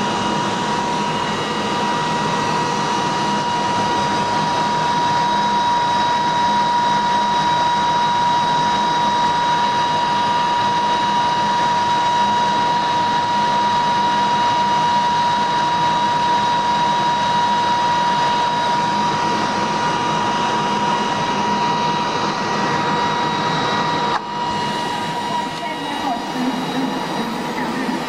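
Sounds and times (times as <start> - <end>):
tape recorder high whine: 0.0 - 28.0.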